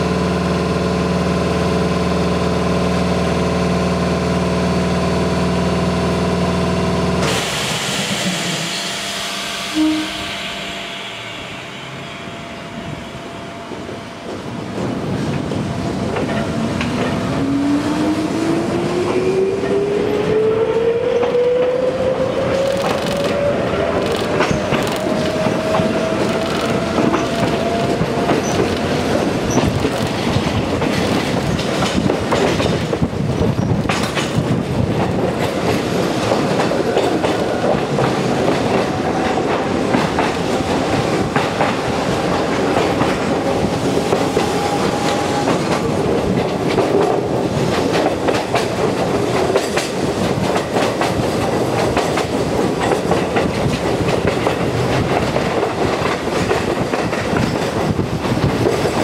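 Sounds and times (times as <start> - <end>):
train running noise: 0.0 - 59.0
train motor whine: 6.5 - 14.6
wheels clicking over rail joints: 22.5 - 59.0.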